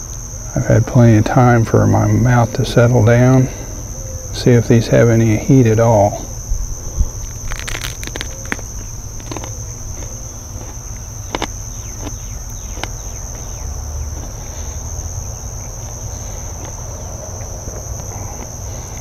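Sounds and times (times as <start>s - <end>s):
insects trilling: 0.0s - 19.0s
crisp crunches of chewing: 6.3s - 19.0s.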